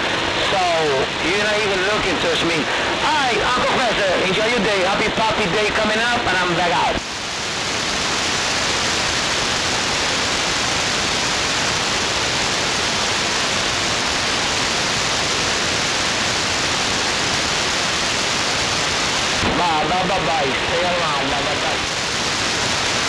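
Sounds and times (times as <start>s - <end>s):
radio static hiss: 0.0s - 23.0s.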